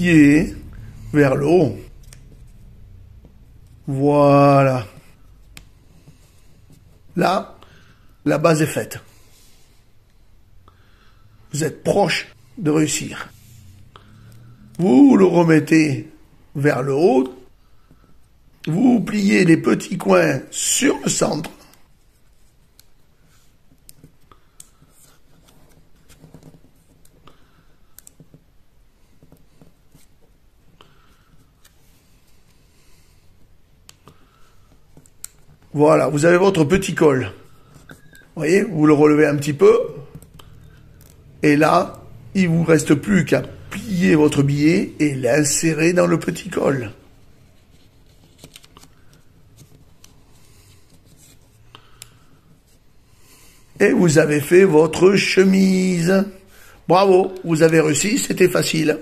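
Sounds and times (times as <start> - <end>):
banknote crinkling and rustling: 19.4 - 53.5
paper banknote crinkling: 44.7 - 52.5.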